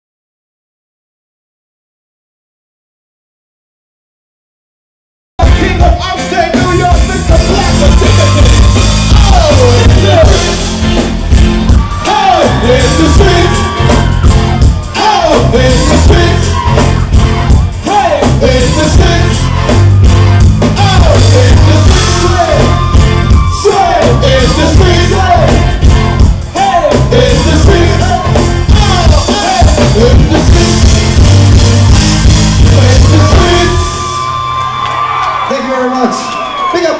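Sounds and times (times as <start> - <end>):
person singing: 5.4 - 10.7, 11.9 - 19.8, 20.6 - 31.2, 32.5 - 34.2
live band playing dancehall: 5.4 - 36.9.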